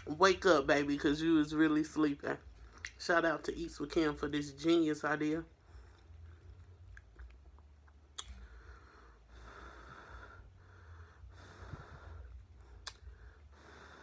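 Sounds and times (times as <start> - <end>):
nasal breathing: 8.3 - 14.0.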